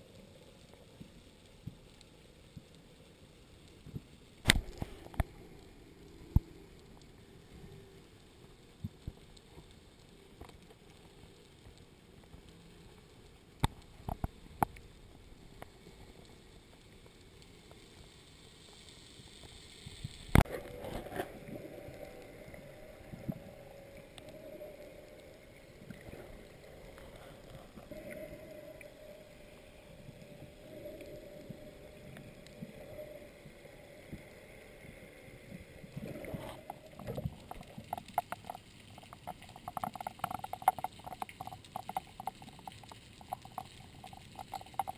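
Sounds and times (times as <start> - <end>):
water sloshing and gurgling: 20.1 - 44.9.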